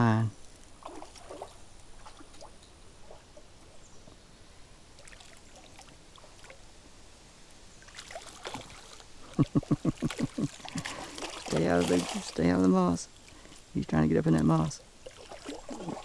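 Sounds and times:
fish splashing in water: 0:00.8 - 0:03.4, 0:07.8 - 0:09.0, 0:09.6 - 0:12.4, 0:15.0 - 0:16.0.

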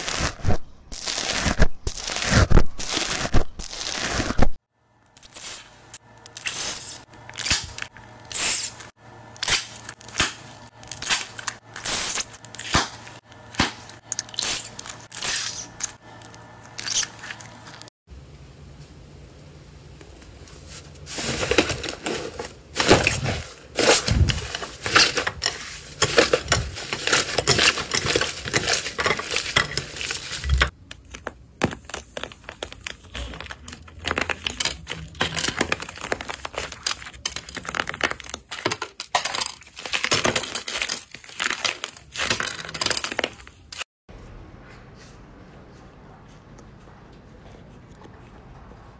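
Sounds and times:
hard crust crunching: 0:21.0 - 0:43.6.

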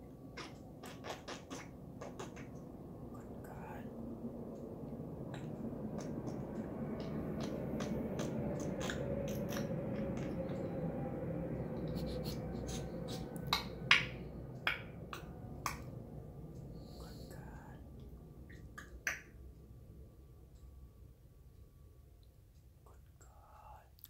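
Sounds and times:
low background noise: 0:00.0 - 0:24.0
parrot sniffing: 0:11.8 - 0:13.6.

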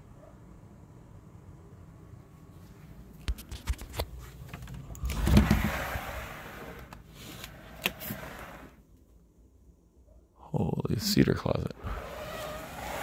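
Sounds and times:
door rubbing open: 0:05.0 - 0:08.8, 0:11.8 - 0:13.0.

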